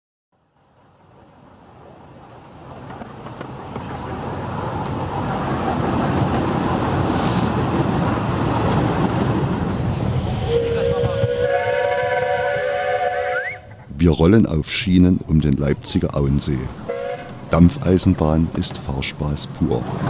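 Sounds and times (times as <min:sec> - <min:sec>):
rushing noise: 0:01.0 - 0:14.1
steam locomotive whistle chord: 0:10.2 - 0:13.8, 0:16.9 - 0:17.3.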